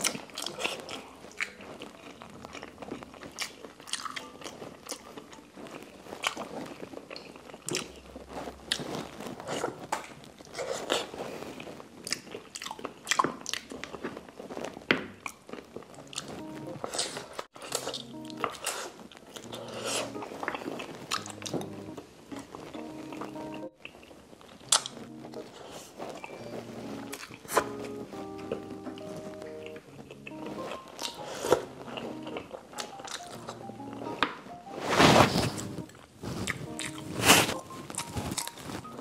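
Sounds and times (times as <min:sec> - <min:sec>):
chewing and wet mouth smacks: 0:00.0 - 0:05.4, 0:12.0 - 0:14.2, 0:23.8 - 0:25.0.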